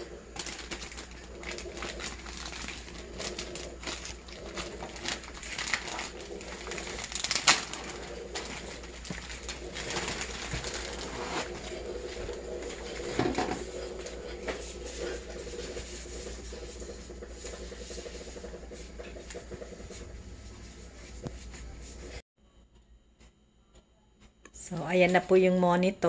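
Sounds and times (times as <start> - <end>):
plastic wrapping rustling: 0.0 - 16.4
knock or crinkle: 13.0 - 13.7.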